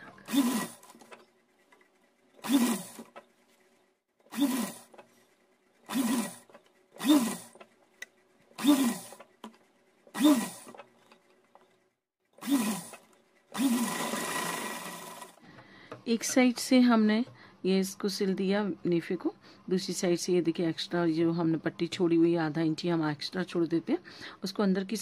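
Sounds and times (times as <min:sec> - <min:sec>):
sewing machine stitching: 0:00.0 - 0:15.4.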